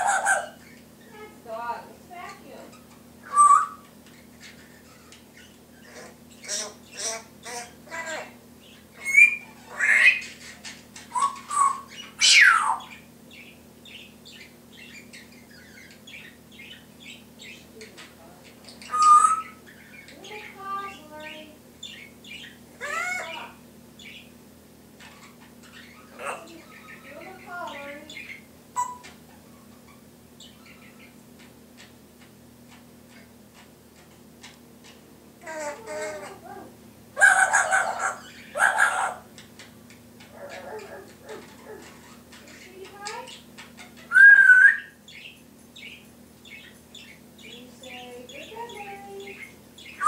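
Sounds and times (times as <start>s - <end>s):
parrot calling: 0.0s - 1.4s, 2.2s - 24.4s, 25.0s - 50.0s
parrot chirps and clicks: 8.7s - 20.6s, 27.6s - 36.3s, 37.2s - 47.6s.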